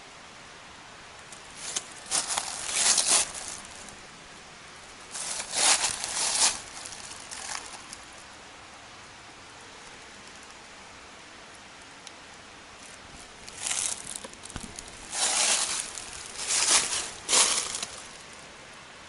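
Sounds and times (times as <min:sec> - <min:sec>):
faint hiss: 0:00.0 - 0:19.0
footsteps crunching dry leaves: 0:01.5 - 0:04.0, 0:05.1 - 0:08.0, 0:13.2 - 0:18.4.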